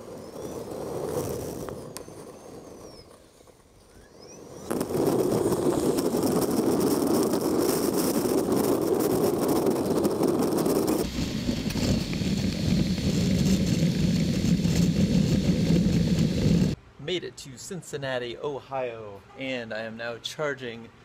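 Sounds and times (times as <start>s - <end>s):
wind and road noise: 0.0s - 16.9s
wind buffeting microphone: 3.8s - 16.8s.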